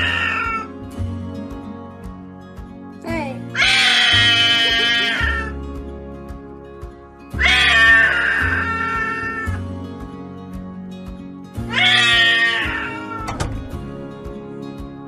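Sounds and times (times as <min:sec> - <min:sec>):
cat yowling: 0:00.0 - 0:00.7, 0:03.6 - 0:05.5, 0:07.4 - 0:09.6, 0:11.7 - 0:13.4
music: 0:00.0 - 0:15.0.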